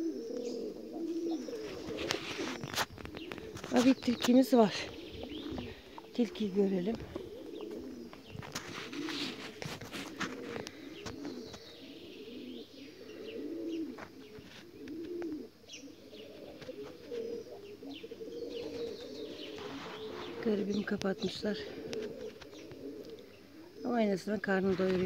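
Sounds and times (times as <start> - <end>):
pigeons cooing: 0.0 - 25.0
small birds chirping: 0.0 - 25.0.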